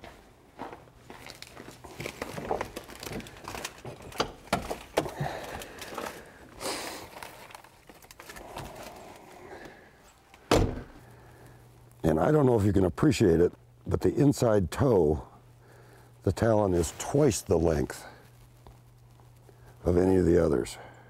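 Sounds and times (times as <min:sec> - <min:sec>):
rustling: 0:01.1 - 0:11.9, 0:15.8 - 0:20.2.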